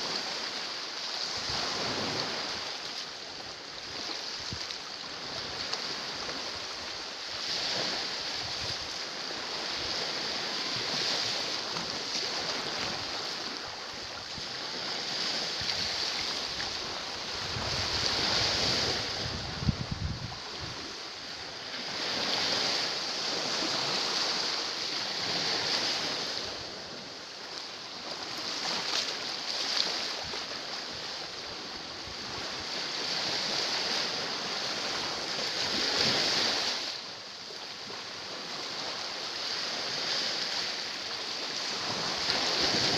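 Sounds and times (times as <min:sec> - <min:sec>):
sea waves on rocky shore: 0:00.0 - 0:42.9
wind rumble on microphone: 0:03.8 - 0:27.1.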